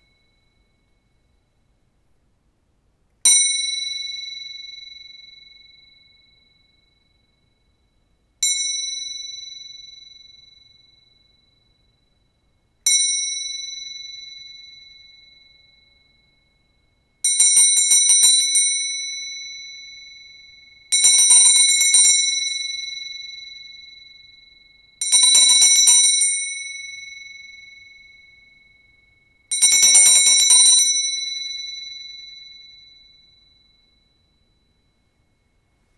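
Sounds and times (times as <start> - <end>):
hand bell ringing: 17.3 - 34.5.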